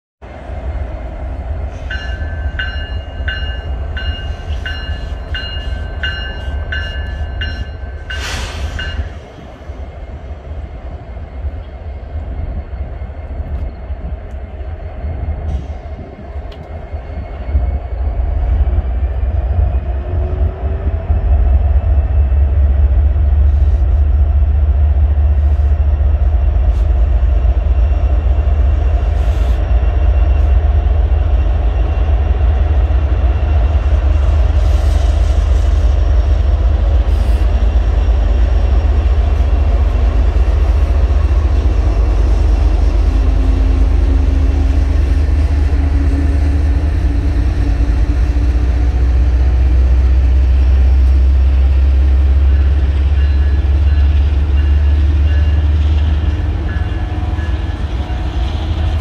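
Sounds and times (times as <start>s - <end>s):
locomotive engine rumble: 0.2s - 59.0s
locomotive bell ringing: 1.8s - 9.2s, 52.1s - 58.5s.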